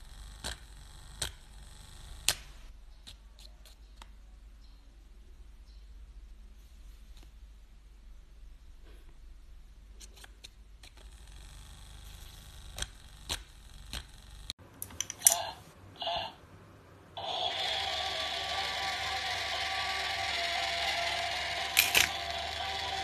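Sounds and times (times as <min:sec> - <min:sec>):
toy motor whirring: 0:00.0 - 0:02.4, 0:10.9 - 0:14.5, 0:17.2 - 0:23.0
coin clinks: 0:21.8 - 0:22.2.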